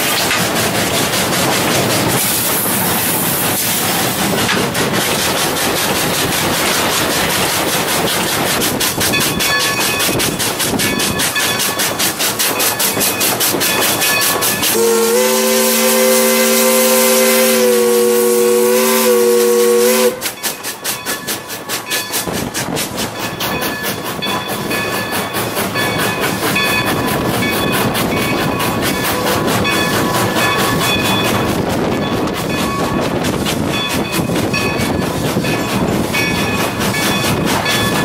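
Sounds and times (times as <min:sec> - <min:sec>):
locomotive running beat with hiss: 0:00.0 - 0:38.0
chime steam whistle: 0:12.6 - 0:22.2.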